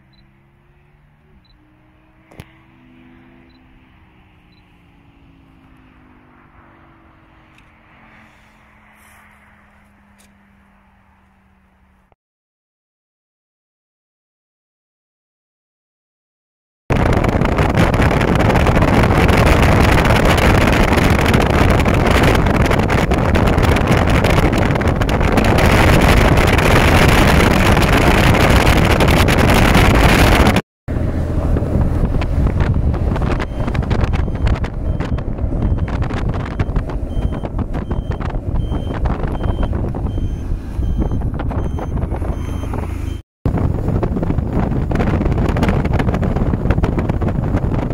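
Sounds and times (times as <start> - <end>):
wind on microphone: 16.9 - 47.9.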